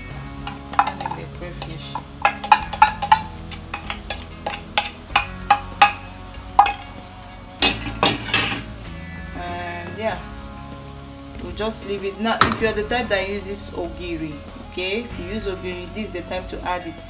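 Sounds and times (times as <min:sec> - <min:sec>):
metal bowl clinking on pot: 0:00.4 - 0:06.9, 0:07.6 - 0:08.7.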